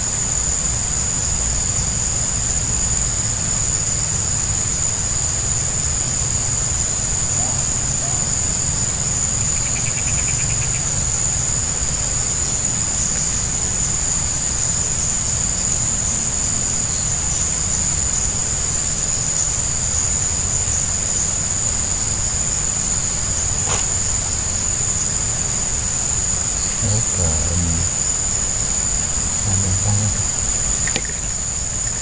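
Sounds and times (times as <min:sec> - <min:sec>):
insects droning: 0:00.0 - 0:32.0
rapid chirping: 0:09.2 - 0:11.0, 0:26.4 - 0:32.0.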